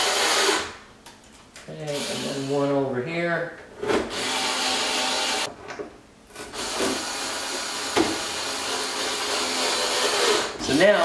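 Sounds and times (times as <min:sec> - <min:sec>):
screw gun grinding: 0:06.5 - 0:10.6.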